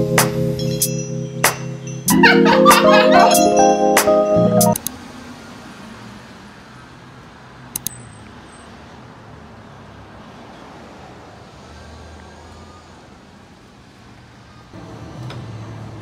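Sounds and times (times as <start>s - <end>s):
distant road traffic hum: 4.8s - 16.0s
quick clicks: 7.8s - 8.0s.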